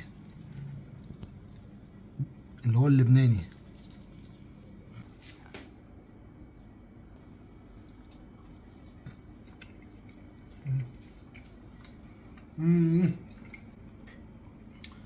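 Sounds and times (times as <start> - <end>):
man chewing food: 0.0 - 2.7, 3.5 - 5.5, 7.2 - 15.0
man humming mmm: 10.6 - 11.0, 12.5 - 13.3.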